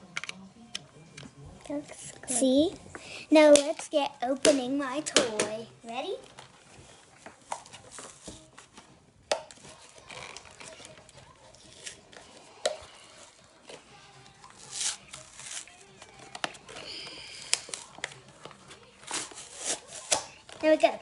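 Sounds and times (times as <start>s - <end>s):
card and plastic crinkling: 9.5s - 20.9s.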